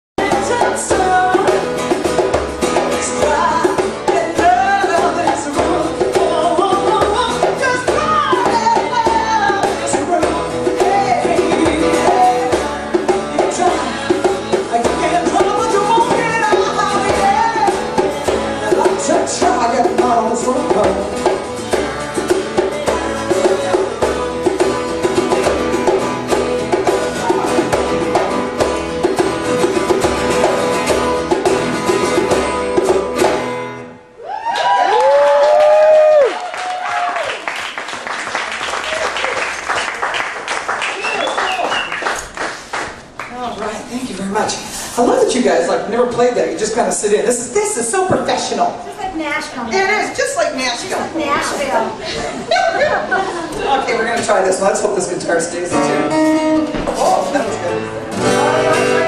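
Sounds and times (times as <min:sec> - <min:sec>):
woman singing: 0:00.2 - 0:01.9, 0:02.8 - 0:21.4
hand drum: 0:00.2 - 0:33.8
strummed acoustic guitar: 0:00.2 - 0:34.1, 0:50.5 - 0:59.0.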